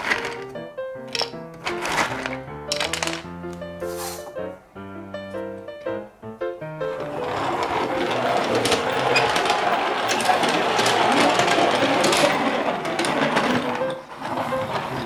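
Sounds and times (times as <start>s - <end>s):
toy truck wheels rattling: 0.0s - 3.3s, 7.0s - 15.0s.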